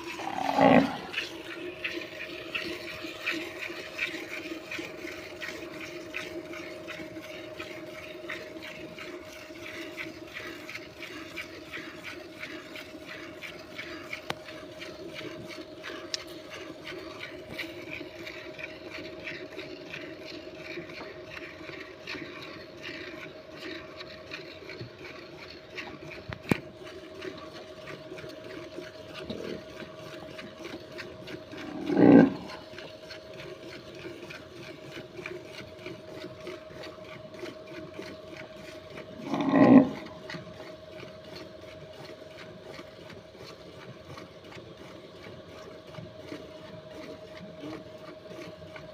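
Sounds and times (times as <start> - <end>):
low animal call: 0.0 - 1.3, 31.6 - 32.7, 39.1 - 40.3.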